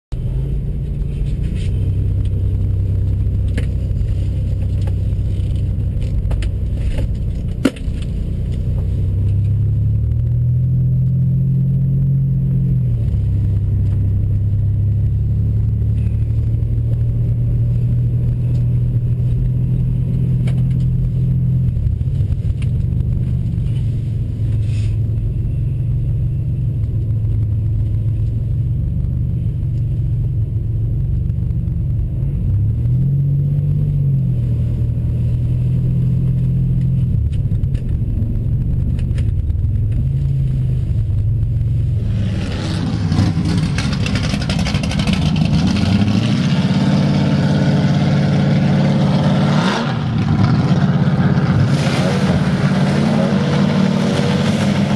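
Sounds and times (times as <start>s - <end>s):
car engine low rumble: 0.0s - 54.9s.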